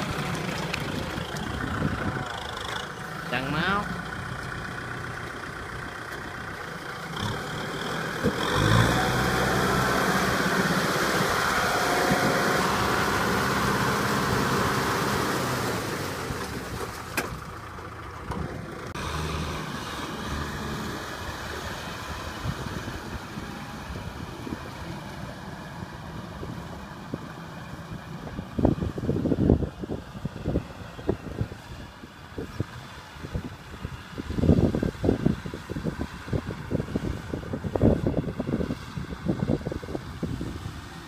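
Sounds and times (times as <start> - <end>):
tractor diesel engine running: 0.0 - 41.0.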